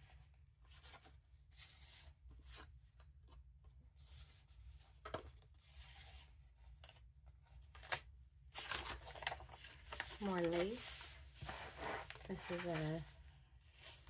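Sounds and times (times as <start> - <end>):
paper rustling: 7.6 - 14.0.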